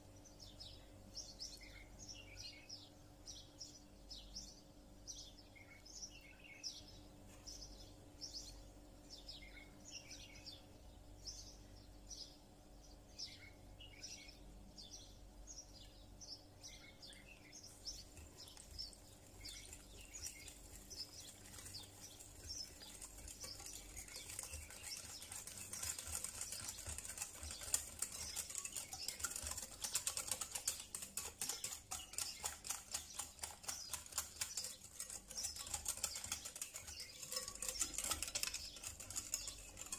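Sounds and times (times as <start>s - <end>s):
small bird chirping: 0.0s - 39.9s
whisk clicking against glass bowl: 17.9s - 39.9s.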